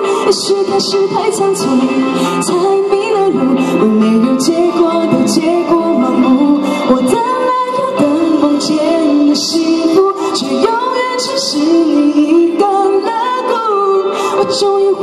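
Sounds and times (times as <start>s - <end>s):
musical accompaniment: 0.0s - 15.0s
woman singing pop song: 0.0s - 15.0s.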